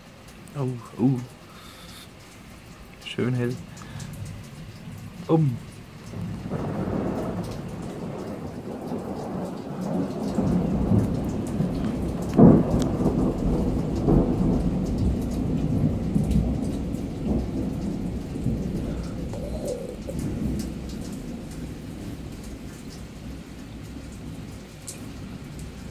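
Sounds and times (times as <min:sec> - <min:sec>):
steady rain: 0:00.0 - 0:25.9
thunder rumbling: 0:06.1 - 0:25.9.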